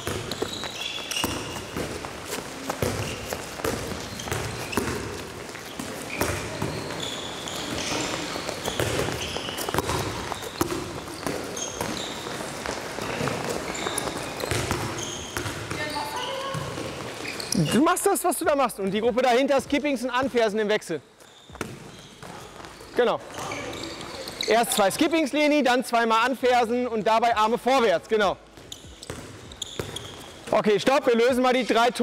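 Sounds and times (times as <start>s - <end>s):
shoes squeaking: 0.0s - 18.1s, 21.1s - 25.6s, 27.7s - 32.0s
balls bouncing on hall floor: 0.0s - 18.6s, 21.2s - 25.3s, 28.2s - 31.0s.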